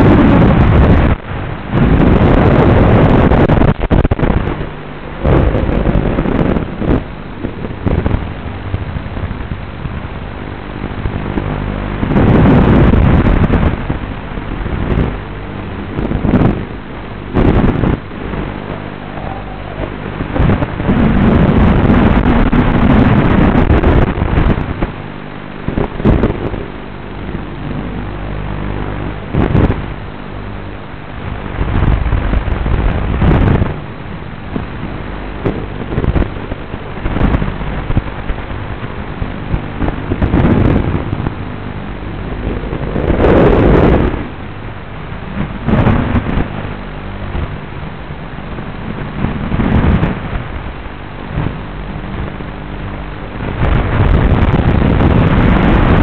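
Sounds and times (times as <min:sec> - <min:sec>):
crackly radio static: 0:00.0 - 0:56.0
wind rush: 0:00.0 - 0:56.0
quadcopter motors surging: 0:01.7 - 0:25.0, 0:25.6 - 0:30.0, 0:40.3 - 0:46.3.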